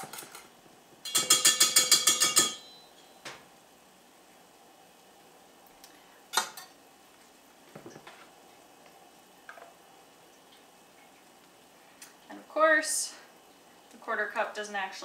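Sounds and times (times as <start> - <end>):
measuring cup clinking on bowl: 1.0 - 2.9.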